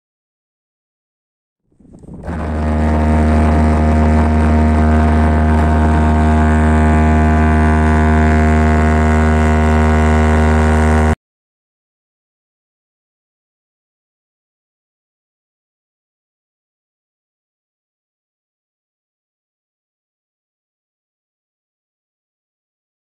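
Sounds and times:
ship horn blast: 2.0s - 11.2s.

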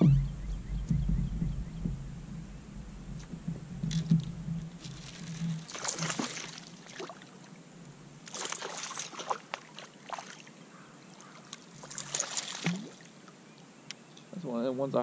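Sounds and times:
fish splashing in water: 4.8s - 7.5s, 8.2s - 13.2s.

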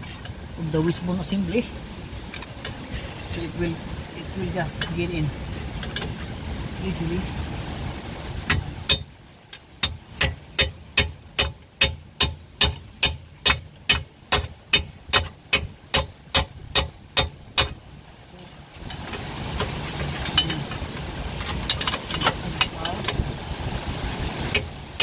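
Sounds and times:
steady rushing noise: 0.0s - 25.0s
hammer striking steel chisel: 8.9s - 9.1s, 9.8s - 17.8s.

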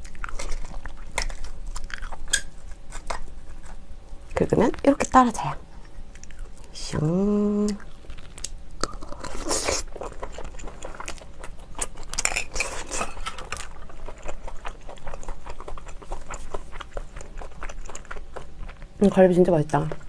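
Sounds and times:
chewing clicks: 0.0s - 3.8s, 5.8s - 6.6s, 7.6s - 18.9s
wet slurping of shellfish: 8.8s - 11.0s.

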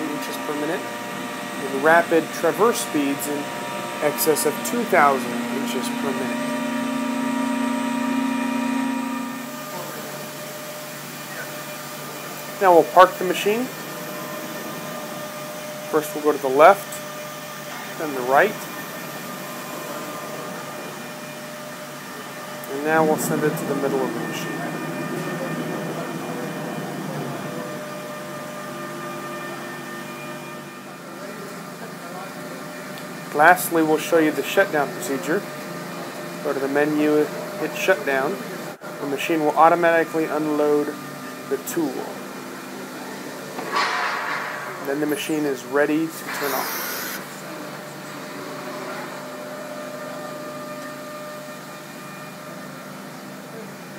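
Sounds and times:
cnc router gantry moving: 0.0s - 30.8s, 46.2s - 47.4s.

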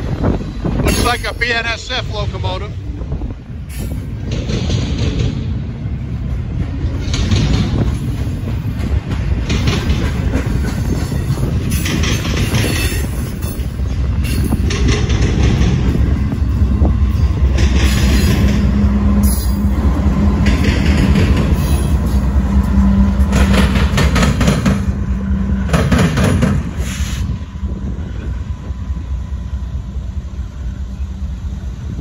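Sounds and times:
locomotive engine drone: 0.0s - 32.0s
steel wheels clattering and squealing: 0.7s - 1.9s, 6.6s - 27.4s.

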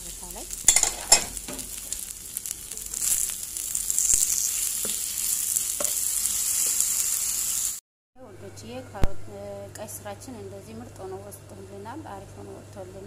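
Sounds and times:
vegetables sizzling in oil: 0.0s - 7.8s
spatula tapping a pan: 5.8s - 6.0s.

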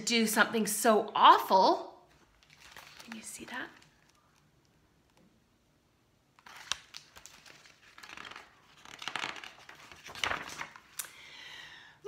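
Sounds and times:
paper pages rustling: 2.1s - 4.8s, 6.4s - 11.0s.

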